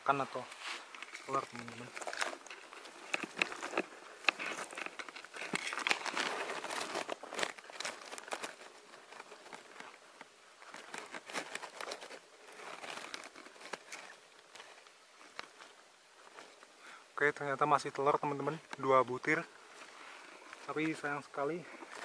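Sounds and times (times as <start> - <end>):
leaves and twigs rustling: 0.0 - 22.0
twigs snapping: 0.9 - 16.8.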